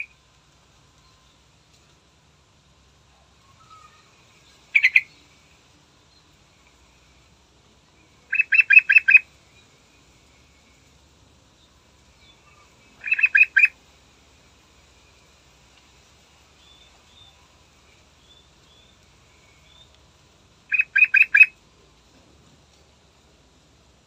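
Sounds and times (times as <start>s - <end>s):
bird singing: 3.4s - 6.9s, 7.8s - 13.8s, 16.4s - 20.0s, 20.7s - 21.6s.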